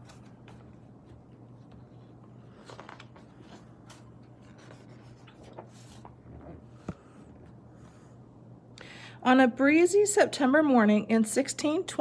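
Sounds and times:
book pages rustling: 0.0 - 7.2.

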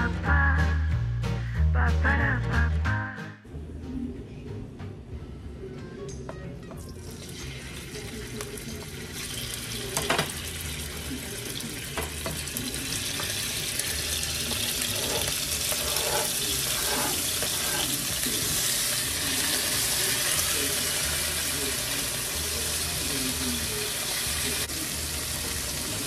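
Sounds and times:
chicken sizzling in hot oil: 7.1 - 26.0.

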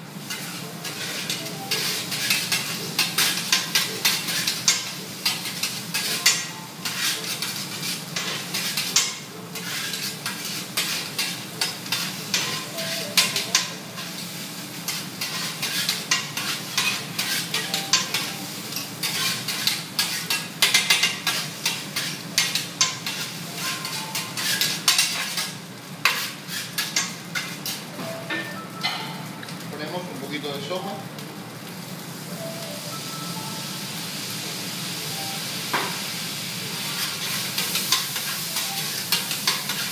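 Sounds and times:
rice sizzling on hot plate: 0.0 - 39.9
metal spatulas scraping griddle: 0.2 - 27.9, 36.8 - 39.9.

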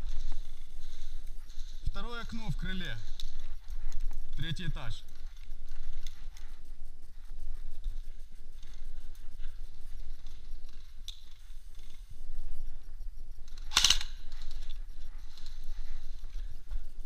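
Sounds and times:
airsoft rifle firing: 13.6 - 14.3.

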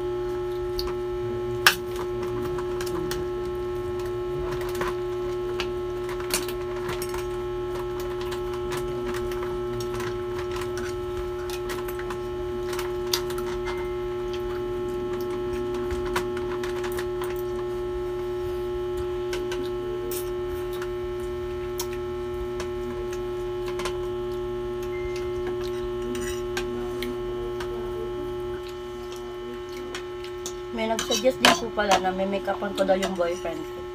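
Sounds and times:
electrical hum with pitched tone: 0.0 - 33.9
forks clicking on plates: 30.4 - 32.1.

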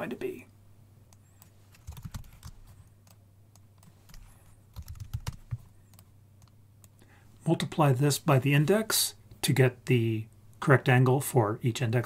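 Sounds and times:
faint low hum: 0.0 - 12.0
computer keyboard typing: 1.4 - 7.0.

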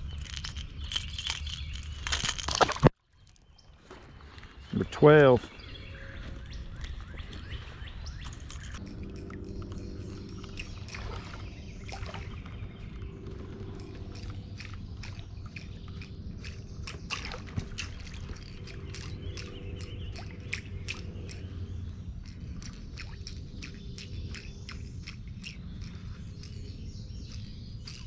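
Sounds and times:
low steady rumble: 5.6 - 28.0
river water sloshing: 8.2 - 26.0.

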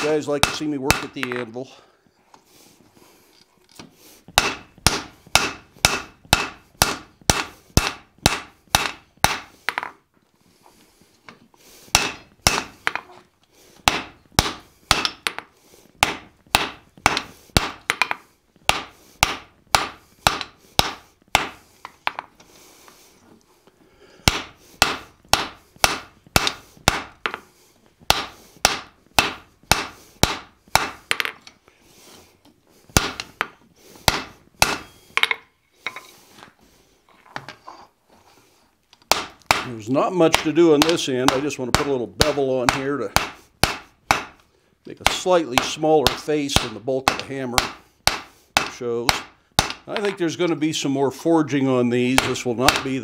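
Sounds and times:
hammer striking metal on anvil: 0.0 - 1.4, 4.4 - 9.9, 11.9 - 13.0, 13.9 - 15.4, 16.0 - 22.2, 34.1 - 35.4, 45.0 - 49.9.

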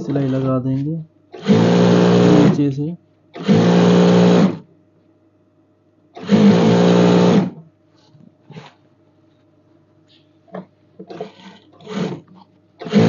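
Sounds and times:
sewing machine running: 0.0 - 0.6, 1.4 - 2.7, 3.4 - 4.6, 6.2 - 7.6, 11.1 - 13.0.

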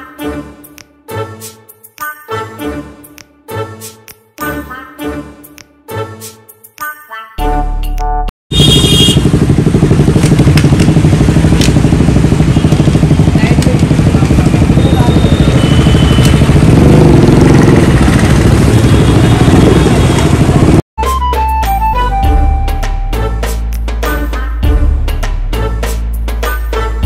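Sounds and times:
vehicle engine running: 8.5 - 20.8.

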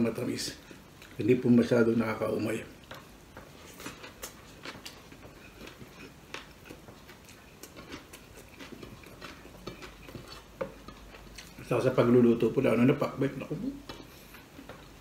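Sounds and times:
chewing and mouth smacks: 0.6 - 1.2, 2.7 - 11.8, 13.7 - 15.0.

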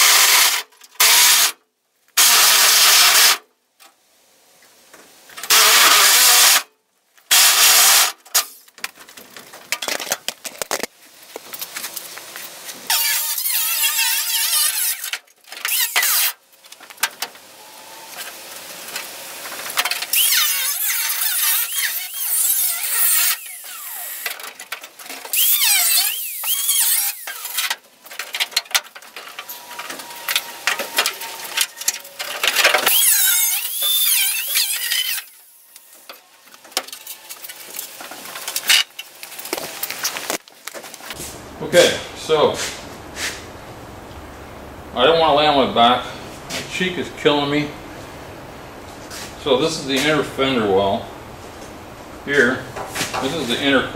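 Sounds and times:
grinder cutting sheet steel: 0.0 - 1.6, 2.2 - 3.4, 5.5 - 6.7, 7.3 - 8.5, 12.9 - 16.4, 19.8 - 24.6, 25.2 - 27.8, 29.4 - 37.9.

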